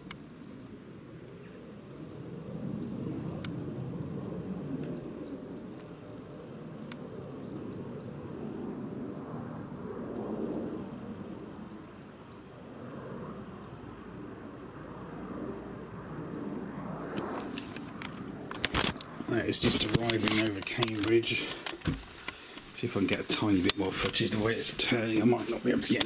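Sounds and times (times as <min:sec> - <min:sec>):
distant jet rumble: 0:00.0 - 0:26.0
small bird chirping: 0:02.8 - 0:03.6, 0:05.0 - 0:05.9, 0:07.4 - 0:08.4, 0:11.7 - 0:12.6.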